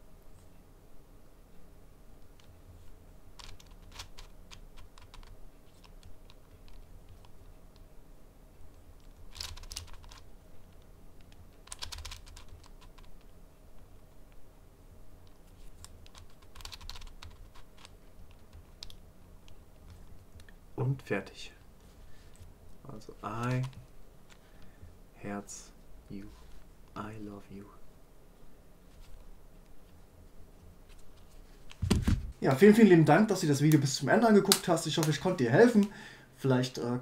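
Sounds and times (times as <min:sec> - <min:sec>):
puzzle cube layers clicking: 0:03.4 - 0:07.9, 0:09.0 - 0:14.4, 0:15.2 - 0:20.6.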